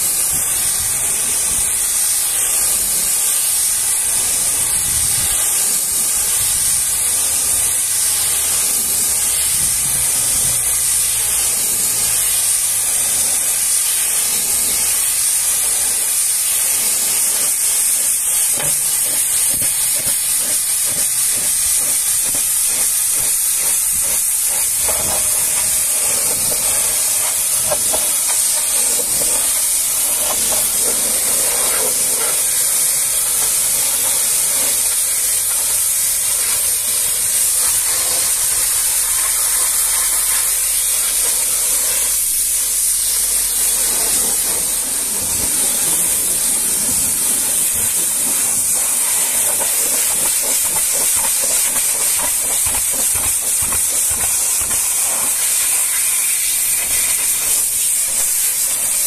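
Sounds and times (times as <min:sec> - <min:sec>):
pressure washer spraying metal: 0:00.0 - 0:59.0.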